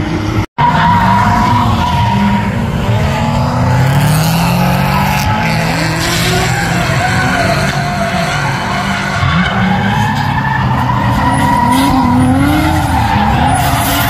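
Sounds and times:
car engines revving: 0.0 - 14.0
tyres squealing: 0.6 - 14.0.

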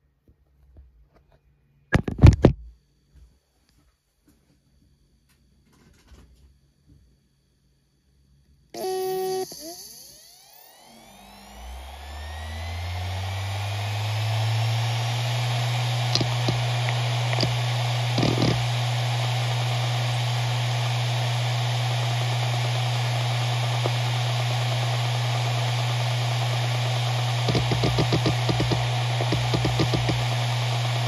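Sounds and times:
hard drive spindle hum: 8.4 - 31.0
hard drive seek chatter: 8.8 - 31.0
hard drive head clicks: 16.1 - 18.6, 27.4 - 30.4.

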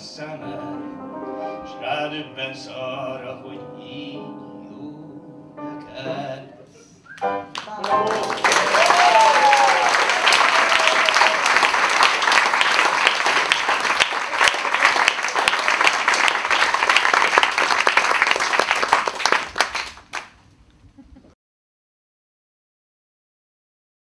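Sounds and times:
audience applauding: 7.4 - 20.4.

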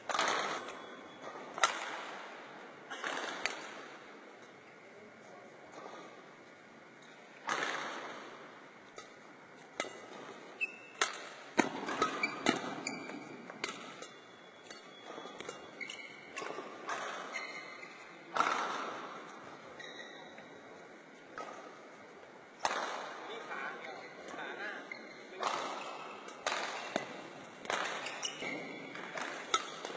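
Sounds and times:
shoes squeaking on court floor: 0.0 - 4.6, 8.9 - 29.9
racket striking shuttlecock: 0.1 - 2.4, 3.0 - 4.0, 7.4 - 19.3, 22.6 - 23.2, 25.4 - 29.9.

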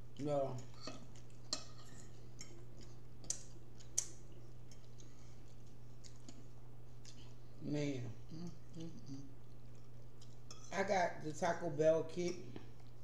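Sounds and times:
steady low hum: 0.0 - 13.0
chewing: 0.1 - 7.6, 8.2 - 10.7, 12.3 - 13.0.

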